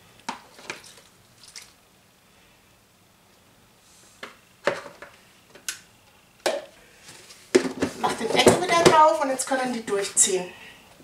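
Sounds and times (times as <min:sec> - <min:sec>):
plastic kitchenware clattering: 0:07.6 - 0:09.2.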